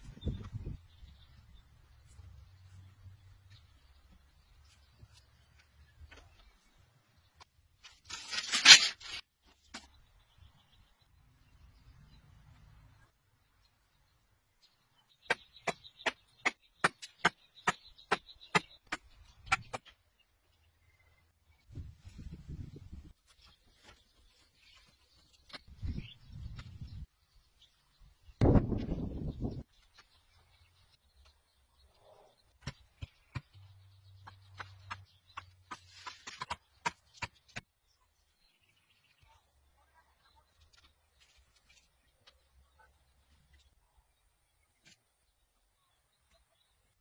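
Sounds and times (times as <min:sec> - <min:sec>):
bamboo poles clacking: 0:07.4 - 0:09.9.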